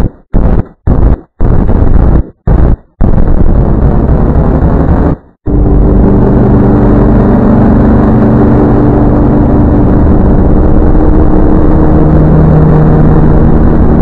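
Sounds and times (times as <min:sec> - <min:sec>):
distorted low droning logo music: 0:03.3 - 0:14.0.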